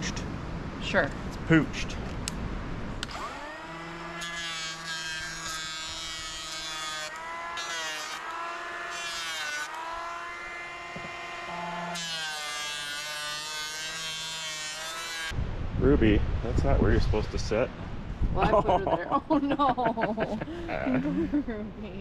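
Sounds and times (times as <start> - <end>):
electric planer motor whine: 3.0 - 15.3.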